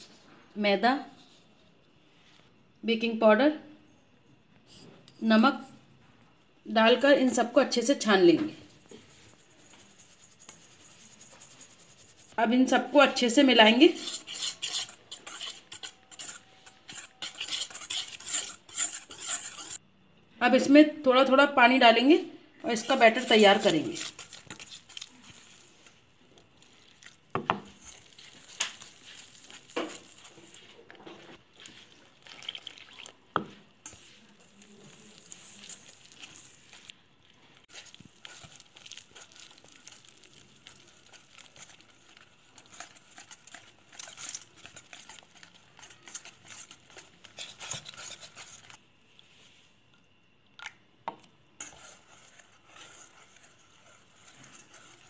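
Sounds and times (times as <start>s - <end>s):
whisk stirring wet batter: 8.7s - 19.8s, 22.6s - 49.5s, 51.6s - 55.0s
whisk clinking metal bowl: 13.1s - 19.8s, 22.8s - 25.6s, 37.7s - 48.8s, 51.6s - 55.0s.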